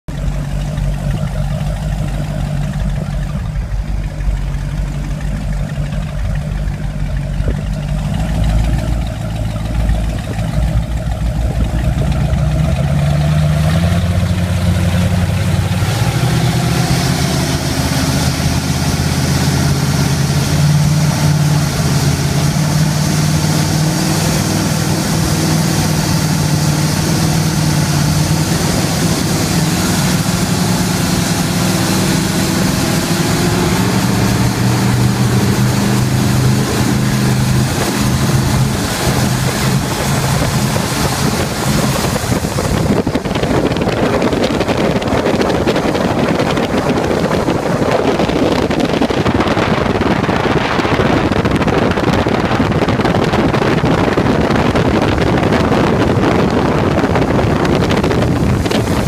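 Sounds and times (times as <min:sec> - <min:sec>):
powerboat engines speeding up: 0:00.0 - 0:59.0
rush of wind and spray: 0:07.4 - 0:59.0.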